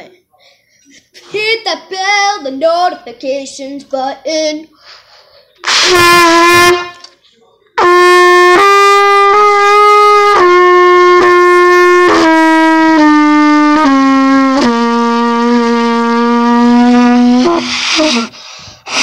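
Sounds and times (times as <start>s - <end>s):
trumpet playing held notes: 5.6s - 7.1s, 7.8s - 18.3s.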